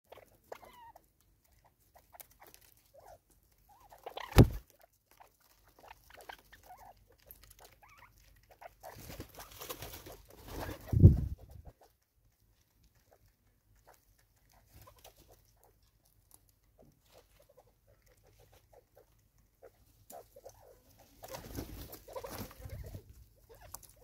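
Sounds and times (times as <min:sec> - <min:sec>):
sharp loud thump: 0:04.3 - 0:04.6.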